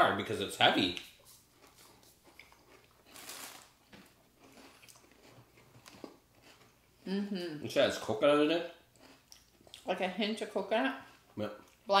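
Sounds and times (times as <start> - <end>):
chewing crunchy chocolate bar: 1.3 - 7.1, 8.9 - 9.9, 10.9 - 11.9.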